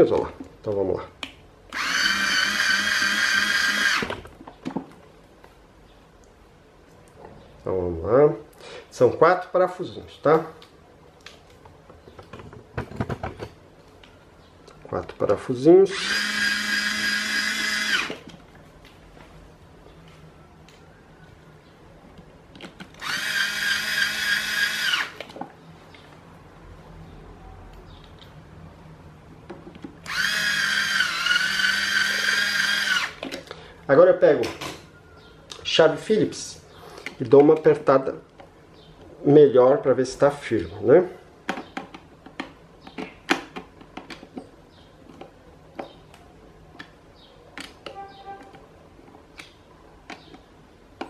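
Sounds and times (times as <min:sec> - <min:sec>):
electric screwdriver motor whine: 0:01.7 - 0:04.1, 0:16.0 - 0:18.2, 0:23.0 - 0:25.2, 0:30.1 - 0:33.2
screwdriver clicking on screws: 0:01.7 - 0:04.2.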